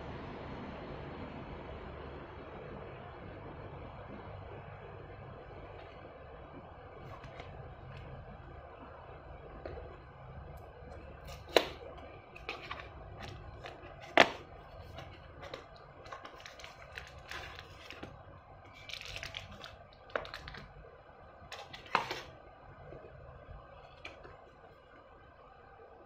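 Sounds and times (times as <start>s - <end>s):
rustling card and plastic: 7.0s - 8.2s, 10.6s - 20.8s, 21.5s - 22.4s.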